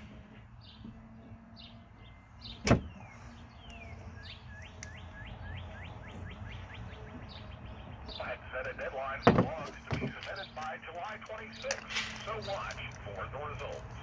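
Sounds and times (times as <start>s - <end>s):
bird singing whistled notes: 2.0s - 8.2s.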